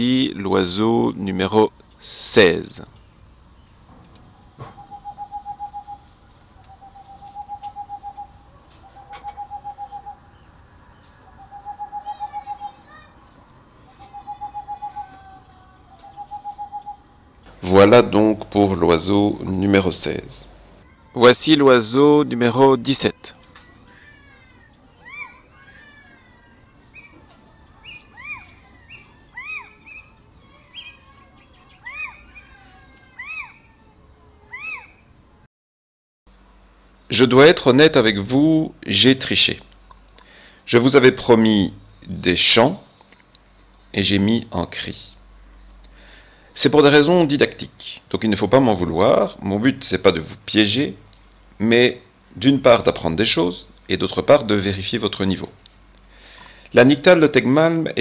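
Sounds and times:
field recording hiss: 0.0 - 35.5, 36.3 - 58.0
owl hooting: 3.0 - 18.2, 23.9 - 33.9, 34.5 - 35.0.

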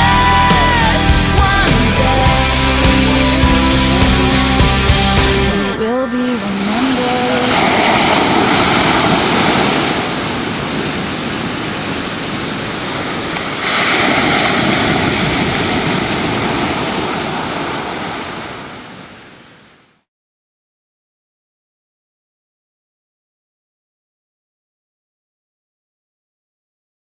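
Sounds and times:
ocean waves breaking: 0.1 - 20.0.

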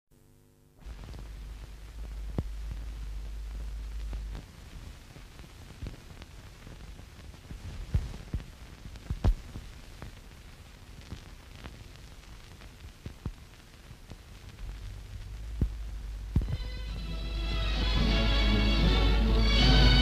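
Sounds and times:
faint film hiss: 0.1 - 20.0
low hum: 0.2 - 6.6, 14.0 - 20.0
film clicks and pops: 5.4 - 10.2, 11.0 - 16.7.

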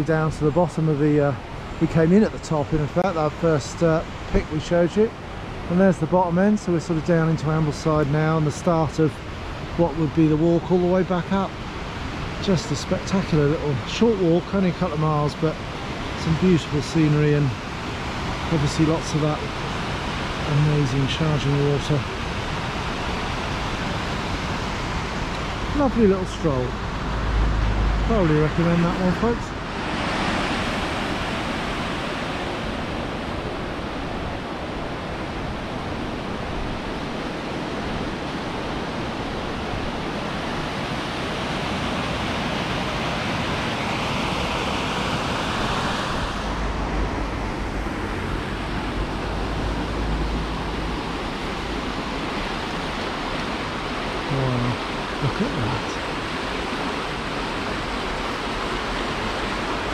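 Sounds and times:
fast-flowing water rushing: 0.0 - 59.9.

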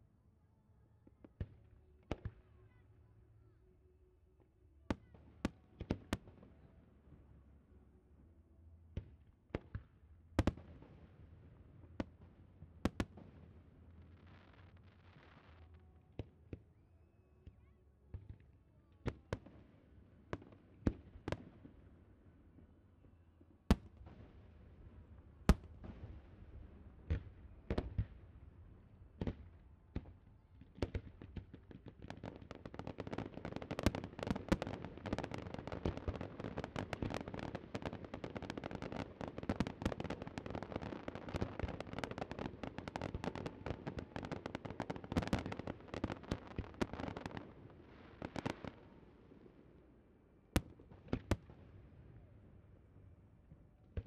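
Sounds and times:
fireworks bangs and crackles: 4.8 - 7.4, 8.8 - 16.7, 23.6 - 49.2, 50.6 - 51.8.

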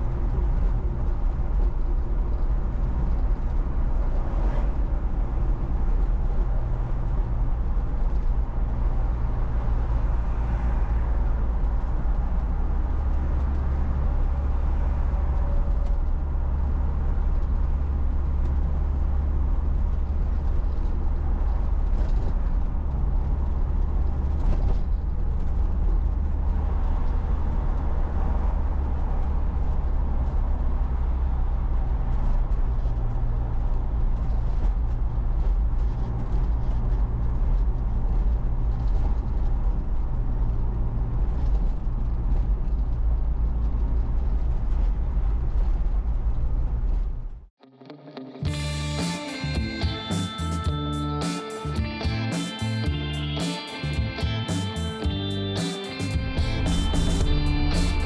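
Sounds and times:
tyre and road noise: 0.0 - 58.0
low engine drone: 48.5 - 58.0.

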